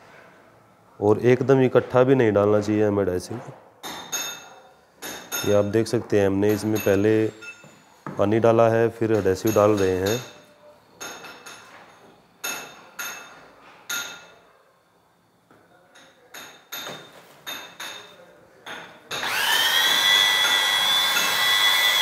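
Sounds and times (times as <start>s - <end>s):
electric drill mixing: 19.1s - 22.0s.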